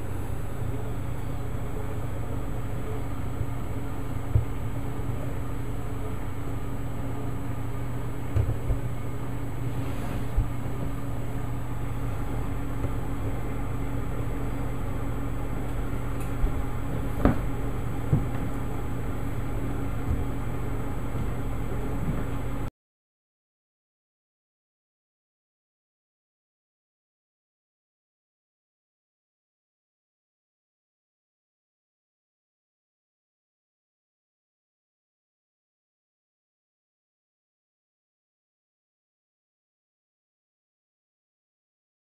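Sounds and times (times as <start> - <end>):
electric oven humming: 0.0 - 22.7.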